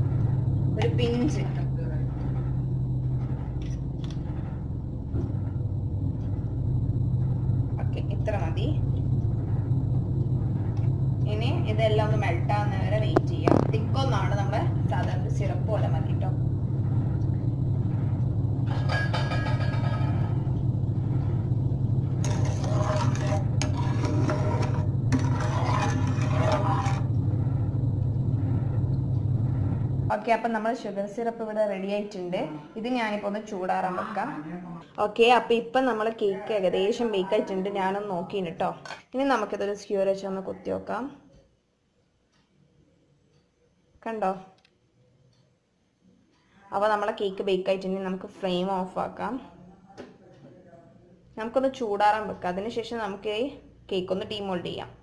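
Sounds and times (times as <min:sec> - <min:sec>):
low rumble: 0:00.0 - 0:34.0
low motor-like hum: 0:00.0 - 0:41.5, 0:46.4 - 0:55.0
spatula scraping a pan: 0:22.1 - 0:27.1.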